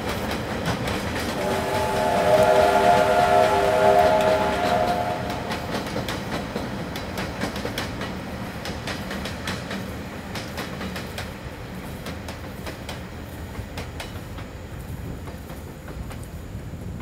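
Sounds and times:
train wheels clicking over rail joints: 0:00.0 - 0:16.7
steam whistle: 0:01.4 - 0:06.2.

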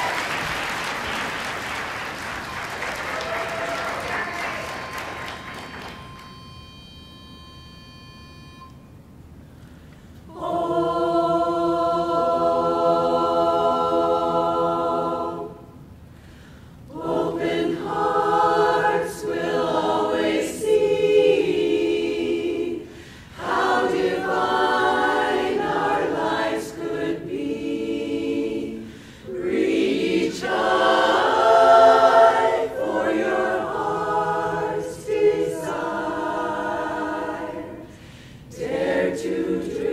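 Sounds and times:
women's chorus singing in harmony: 0:10.3 - 0:15.9, 0:16.9 - 0:39.9.

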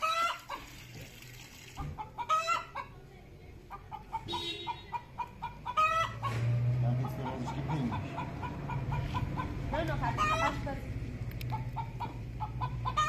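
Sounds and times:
chicken drawn-out calls: 0:00.0 - 0:00.8, 0:01.8 - 0:02.9, 0:03.8 - 0:10.6, 0:11.5 - 0:13.0
chickens clucking: 0:01.8 - 0:10.7, 0:11.5 - 0:13.0.

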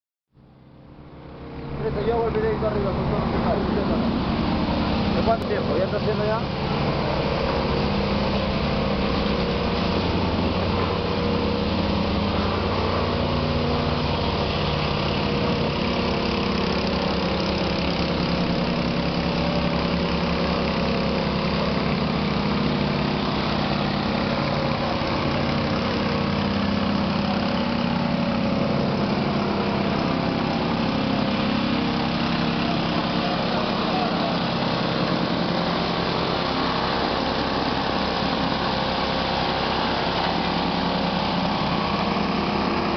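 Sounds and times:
plate compactor engine running: 0:00.4 - 0:42.9.

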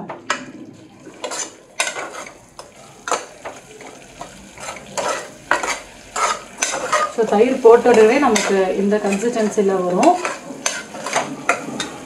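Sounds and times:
food sizzling softly: 0:00.0 - 0:12.0
ladle scraping metal pot: 0:01.2 - 0:03.2, 0:04.6 - 0:12.0.

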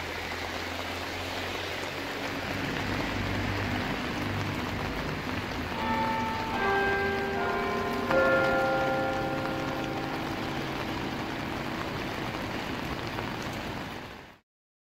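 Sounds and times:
fast-flowing river rushing: 0:00.0 - 0:14.2
rain: 0:00.0 - 0:14.4
tower bells ringing: 0:05.0 - 0:12.9.

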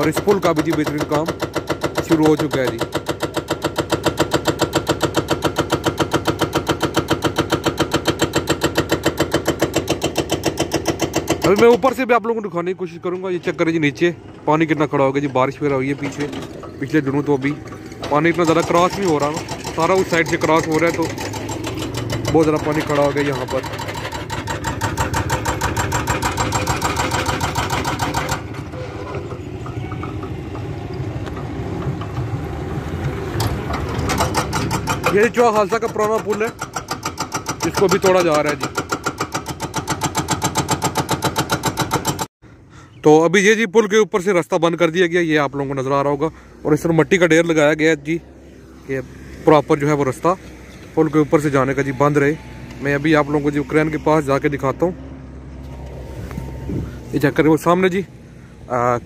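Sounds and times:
hydraulic breaker hammering concrete: 0:00.0 - 0:12.2, 0:14.6 - 0:30.8, 0:33.0 - 0:42.3
diesel engine hum: 0:00.0 - 0:59.0.

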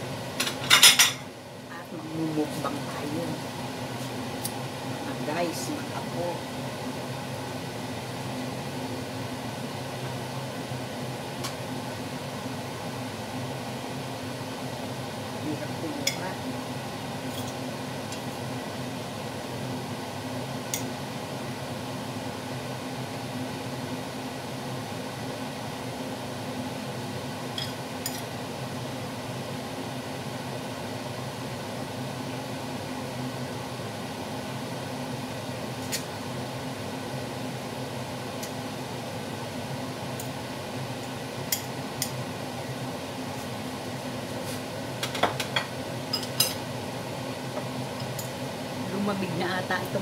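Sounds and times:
steady mechanical hum: 0:00.0 - 0:50.0
metal tongs clinking on pan: 0:27.6 - 0:28.3.

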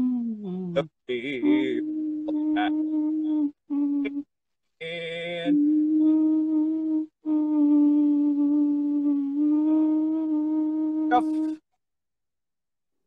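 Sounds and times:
man humming: 0:00.0 - 0:11.6
man singing phrase: 0:01.1 - 0:01.9.

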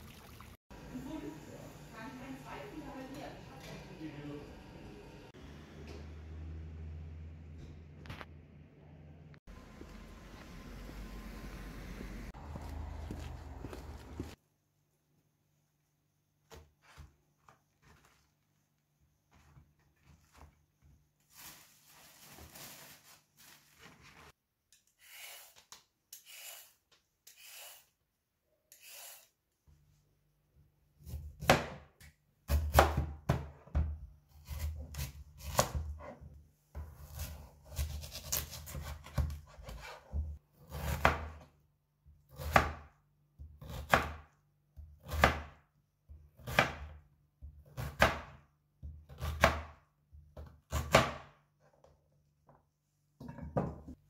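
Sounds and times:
plastic bag rustling: 0:21.2 - 0:24.3
knife slicing on cutting board: 0:36.9 - 0:41.3.

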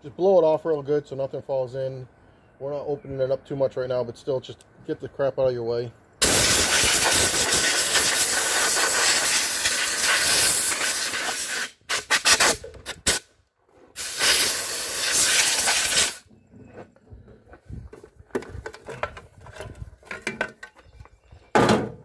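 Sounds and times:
compressed air blow gun hissing: 0:06.2 - 0:13.2, 0:14.0 - 0:16.2.

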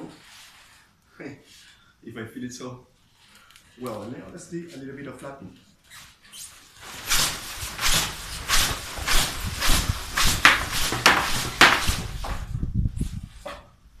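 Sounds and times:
fabric wings whooshing: 0:06.8 - 0:13.1.

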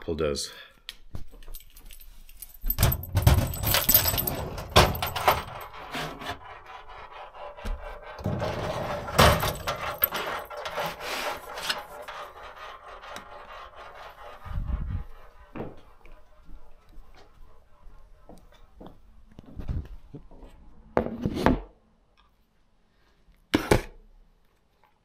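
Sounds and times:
keys jangling: 0:01.4 - 0:05.8, 0:08.8 - 0:11.6
cabinet door unlocking and opening: 0:02.7 - 0:05.7.

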